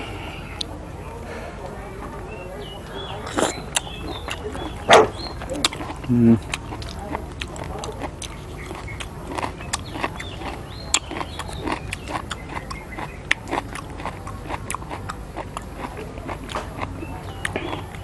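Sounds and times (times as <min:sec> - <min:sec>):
chewing and lip-smacking: 0:03.2 - 0:18.0.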